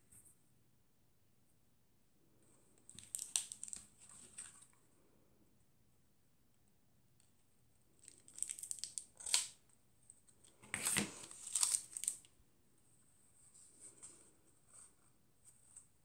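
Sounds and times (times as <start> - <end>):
packaging rustling and tearing: 3.0 - 4.5, 8.1 - 9.6, 10.6 - 12.3.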